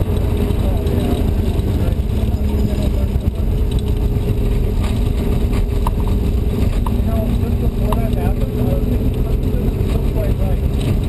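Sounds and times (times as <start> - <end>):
heavy low rumble: 0.0 - 11.0
race car engine under load: 0.0 - 11.0.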